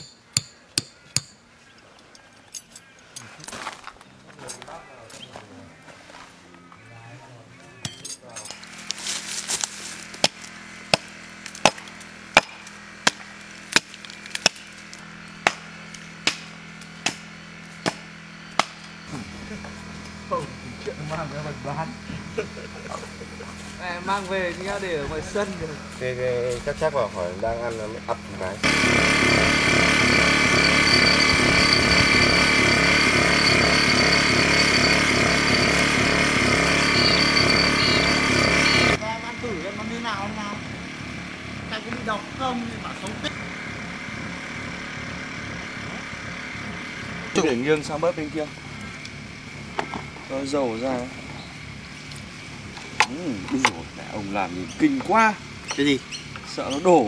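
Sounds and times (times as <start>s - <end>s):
hand tool striking blows: 0.0s - 1.4s
engine running with high whine: 4.0s - 57.0s.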